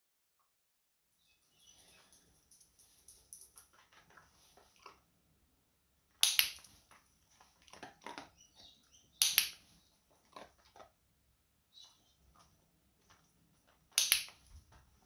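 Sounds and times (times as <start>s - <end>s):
dog-training clicker clicking: 6.2s - 6.6s, 9.2s - 9.6s, 14.0s - 14.4s
dog eating treats: 6.7s - 8.9s, 9.7s - 11.1s.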